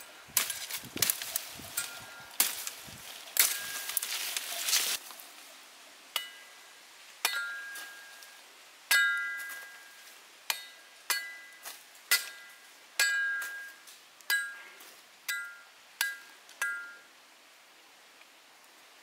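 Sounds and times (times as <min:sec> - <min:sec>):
machete chopping branch: 0:00.4 - 0:05.0, 0:10.5 - 0:12.4.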